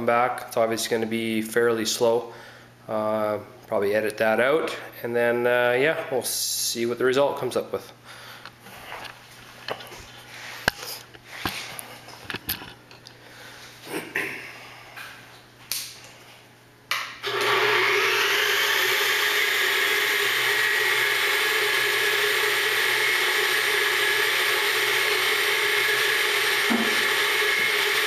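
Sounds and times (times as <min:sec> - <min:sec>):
milling machine spindle motor running: 0:17.2 - 0:28.0.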